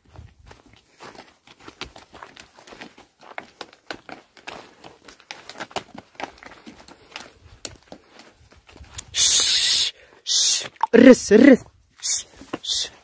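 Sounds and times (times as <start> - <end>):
footsteps on stony path: 0.0 - 9.2, 10.0 - 13.0
hooves crunching on stony path: 0.0 - 9.4, 10.0 - 13.0
loud hiss: 9.2 - 9.9.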